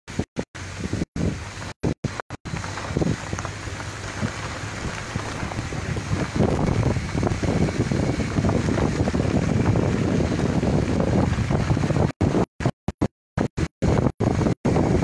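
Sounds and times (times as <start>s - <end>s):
wind buffeting a microphone: 0.1s - 12.7s, 13.4s - 15.0s.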